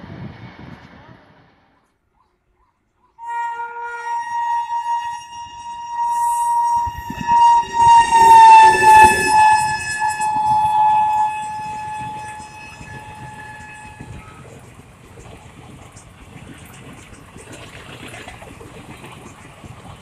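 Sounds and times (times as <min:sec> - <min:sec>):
train horn long blast: 0:03.2 - 0:15.2
wheels clattering over rails: 0:07.2 - 0:20.0.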